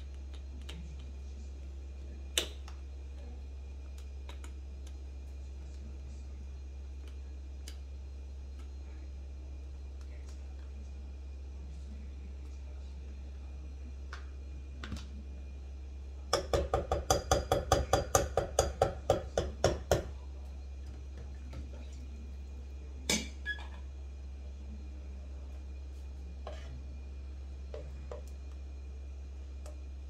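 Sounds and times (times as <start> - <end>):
knocks on a metal pot rim: 16.3 - 20.1.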